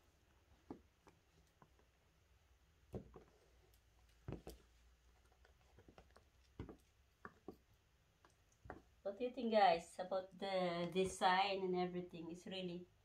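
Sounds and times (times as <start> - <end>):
faint knocks and taps: 2.9 - 9.0.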